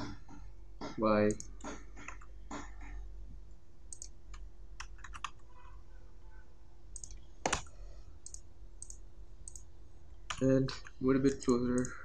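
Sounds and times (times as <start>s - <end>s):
keyboard and mouse clicks: 0.0s - 3.0s, 3.9s - 5.5s, 7.0s - 12.0s
faint steady hum: 0.0s - 12.0s.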